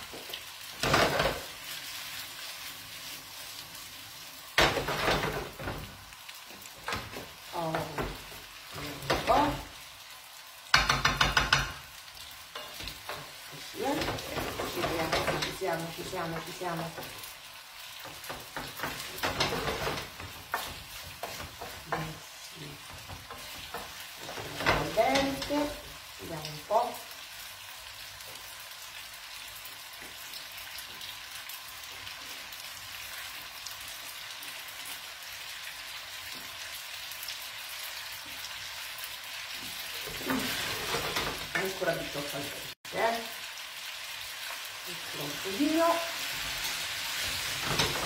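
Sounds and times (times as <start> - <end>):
pasta sizzling in a frying pan: 0.0 - 48.0
wooden spoon scraping a pan: 12.5 - 17.3, 18.0 - 26.0, 39.6 - 42.4, 45.3 - 48.0.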